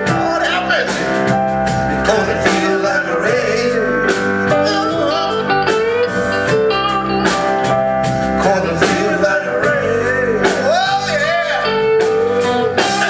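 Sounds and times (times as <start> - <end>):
bass: 0.0 - 13.0
drum kit beat: 0.0 - 13.0
electric guitar: 0.0 - 13.0
man singing: 0.0 - 13.0
horns: 10.5 - 13.0.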